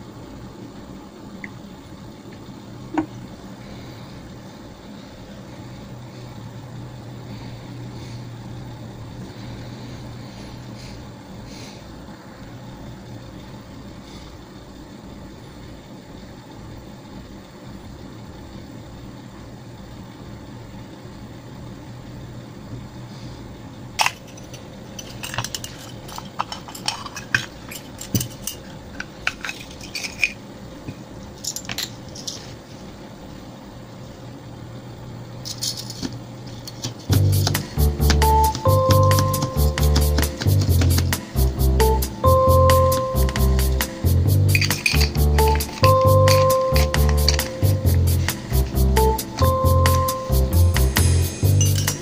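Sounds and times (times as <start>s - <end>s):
steady low hum: 0.0s - 52.0s
small metal bottles clinking: 24.0s - 30.4s, 31.4s - 32.5s, 35.5s - 37.6s, 44.5s - 48.6s, 51.6s - 52.0s.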